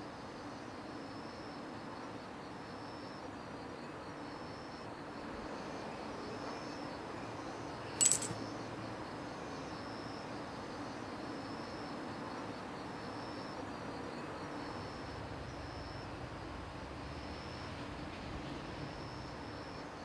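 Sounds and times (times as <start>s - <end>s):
coin clinking in stone dish: 8.0s - 8.4s.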